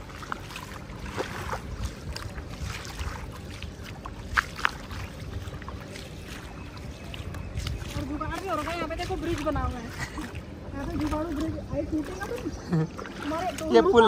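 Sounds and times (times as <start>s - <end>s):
footsteps wading through water: 0.0s - 14.0s.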